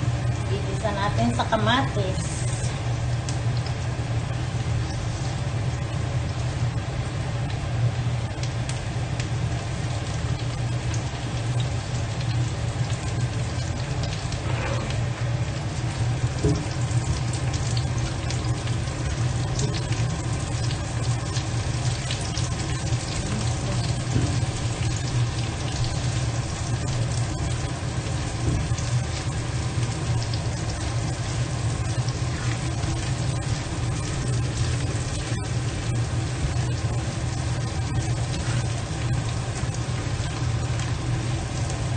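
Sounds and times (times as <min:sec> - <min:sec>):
food sizzling in a wok: 0:00.0 - 0:41.9
steady low hum: 0:00.0 - 0:41.9.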